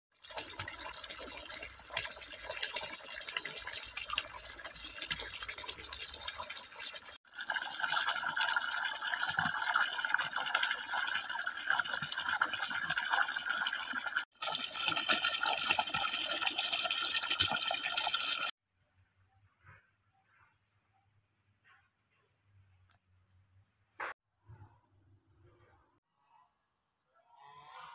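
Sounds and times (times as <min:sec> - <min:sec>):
water pouring and splashing: 0:00.1 - 0:18.6.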